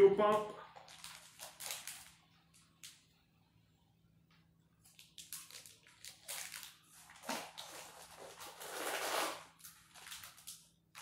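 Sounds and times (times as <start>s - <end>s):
plastic bags rustling and crinkling: 0.6s - 3.0s, 4.8s - 11.0s.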